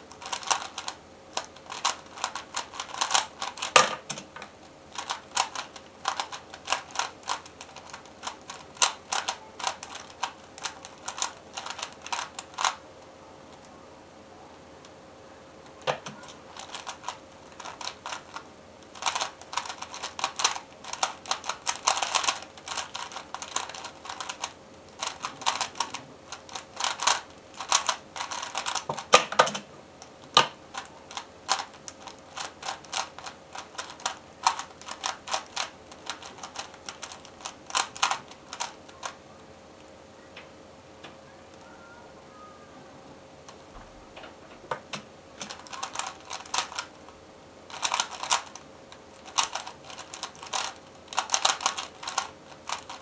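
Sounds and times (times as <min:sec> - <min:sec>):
puzzle cube layers clicking: 0:00.2 - 0:12.8, 0:16.0 - 0:29.6, 0:47.7 - 0:48.6, 0:49.2 - 0:53.0.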